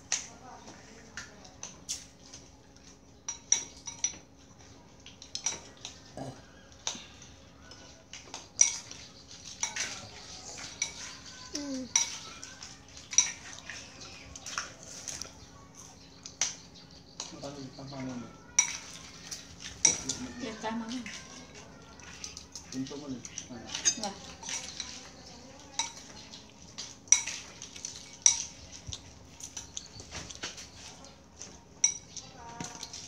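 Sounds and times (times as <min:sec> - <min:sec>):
spoons clinking on ceramic plates: 0:03.2 - 0:04.3, 0:07.8 - 0:10.0, 0:10.6 - 0:12.4, 0:13.0 - 0:13.6, 0:18.5 - 0:20.3, 0:22.5 - 0:26.3, 0:26.9 - 0:31.1, 0:31.8 - 0:33.0.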